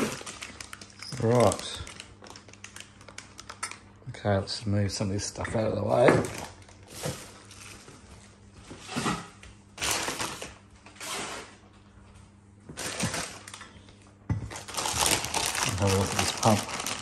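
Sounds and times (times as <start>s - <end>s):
plastic packaging rustling: 0.0s - 3.7s, 5.9s - 9.2s, 9.8s - 11.5s, 12.7s - 13.7s, 14.5s - 17.0s.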